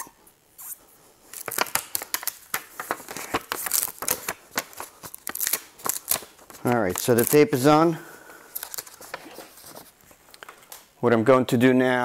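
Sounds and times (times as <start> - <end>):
paper backing peeled off tape: 0.6 - 7.7, 8.6 - 10.1.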